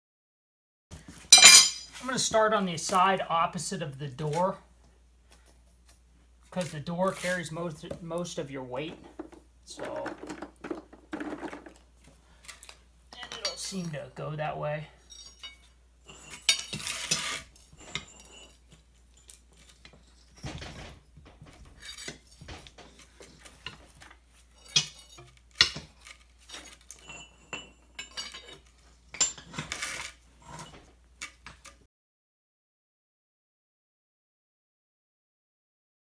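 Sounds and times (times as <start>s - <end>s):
metal clanking on concrete: 1.3s - 1.9s.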